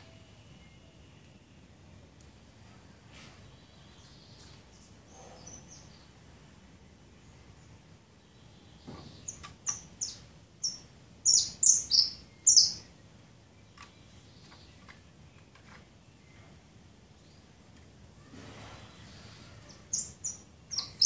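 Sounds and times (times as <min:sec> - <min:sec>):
finch chirping: 0:08.5 - 0:12.9, 0:19.7 - 0:21.0.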